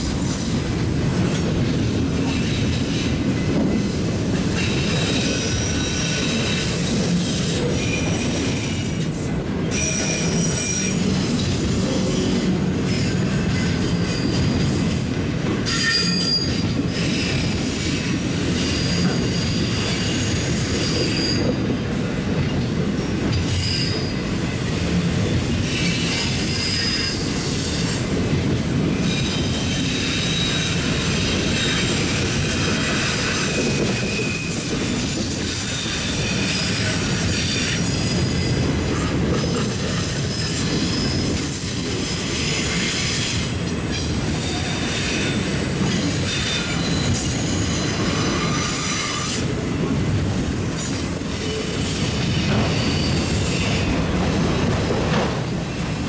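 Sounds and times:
train wheels rumbling on rail: 0.0 - 56.0
high wheel squeals: 29.0 - 49.8.

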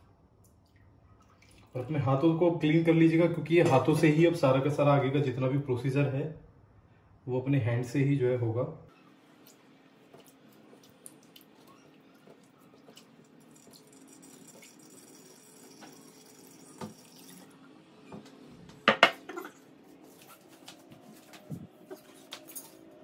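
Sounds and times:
liquid trickling into a vessel: 0.7 - 2.0, 10.2 - 17.7
wet handling sounds: 9.3 - 14.6.

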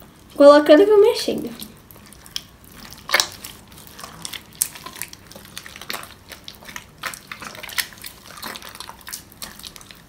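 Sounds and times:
hands squelching sticky slime: 0.9 - 10.0.

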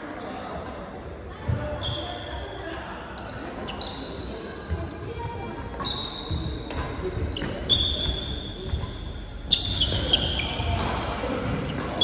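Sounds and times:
rackets hitting shuttlecock: 5.5 - 12.0
shoes squeaking on wooden floor: 5.8 - 12.0.

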